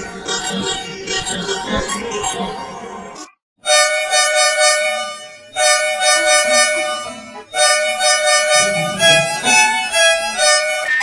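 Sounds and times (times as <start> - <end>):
multi-tone bus horn: 3.6 - 11.0.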